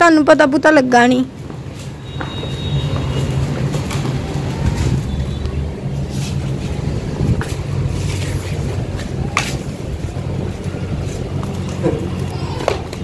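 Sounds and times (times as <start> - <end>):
steady low rumble: 3.4 - 12.3.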